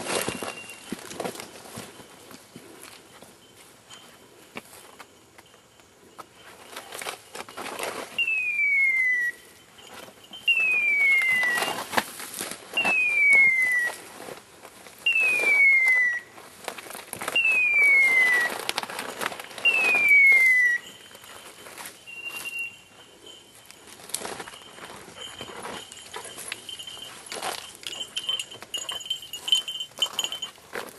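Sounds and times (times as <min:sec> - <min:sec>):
footsteps: 0:00.0 - 0:08.3, 0:09.8 - 0:30.9
beeper collar falling whistle tone: 0:08.1 - 0:09.6, 0:10.4 - 0:12.0, 0:12.7 - 0:14.0, 0:15.0 - 0:16.3, 0:17.3 - 0:18.6, 0:19.6 - 0:21.1, 0:22.0 - 0:23.0
rustle of brush: 0:09.6 - 0:30.9.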